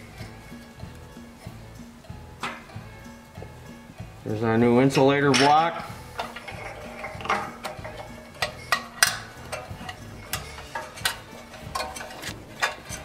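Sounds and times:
engine parts clicking and knocking: 6.2 - 13.0.

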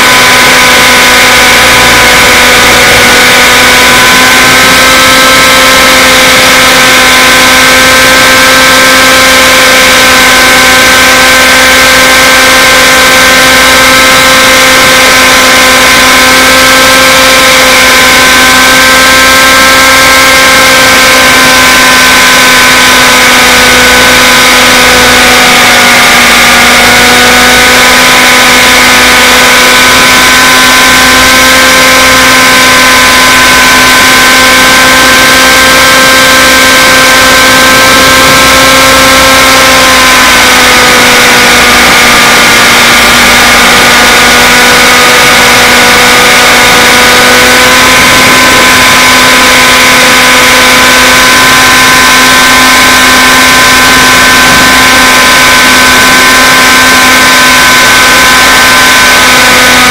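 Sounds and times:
model helicopter engine whine: 0.0 - 59.9.

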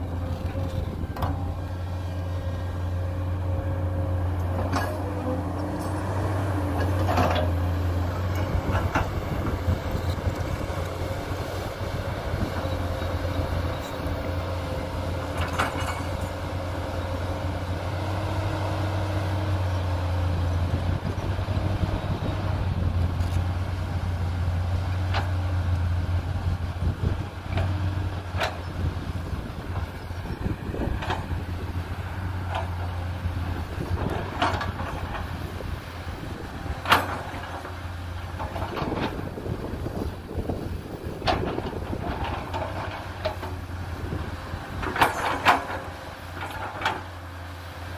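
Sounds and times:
excavator diesel engine running: 0.0 - 47.9
excavator bucket knocks and clanks: 44.8 - 47.1.

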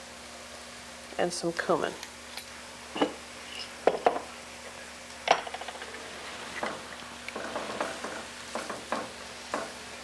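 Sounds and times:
pan sizzling: 2.8 - 10.0.

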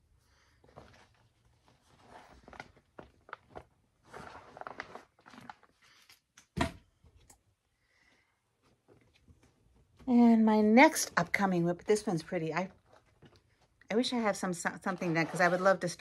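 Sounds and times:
rustling: 0.4 - 6.2.

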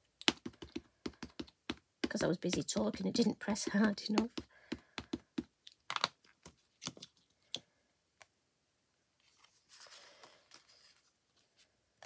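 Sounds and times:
ink pad tapping rubber stamp: 0.2 - 5.5
paper rustling: 9.2 - 11.7.

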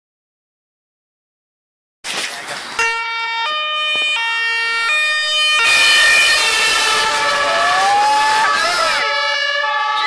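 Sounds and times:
two-tone emergency siren: 2.8 - 10.0
vehicle engine: 5.3 - 9.6.

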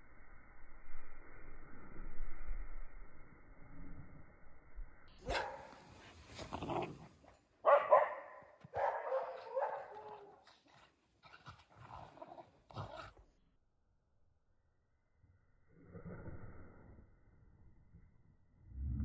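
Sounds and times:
dogs barking: 5.2 - 5.8, 7.6 - 10.4.

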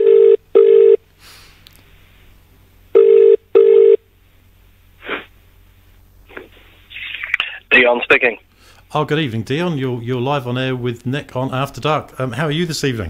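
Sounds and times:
telephone ringing tone: 0.0 - 1.0, 3.0 - 4.0.

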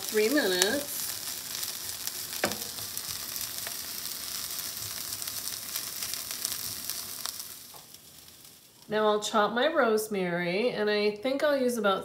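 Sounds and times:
vegetables sizzling in oil: 0.0 - 9.4.

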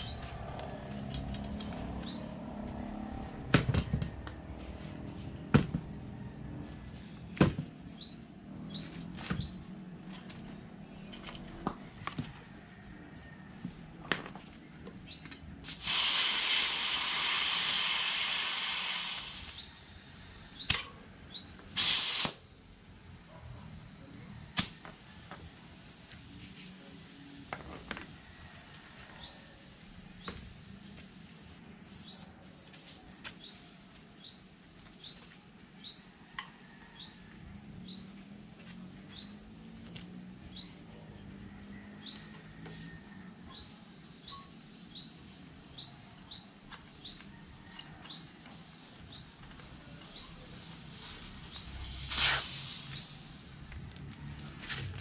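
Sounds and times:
compressed air hissing from hose: 15.6 - 19.9, 21.5 - 22.6, 24.6 - 36.0, 48.1 - 53.6.

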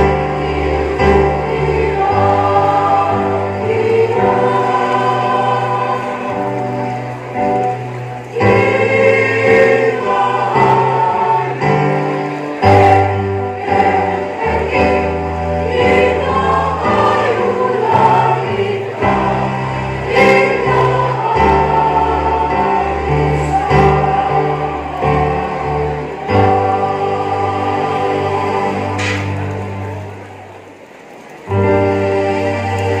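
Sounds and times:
mixed choir singing: 0.0 - 30.3, 31.5 - 33.0.

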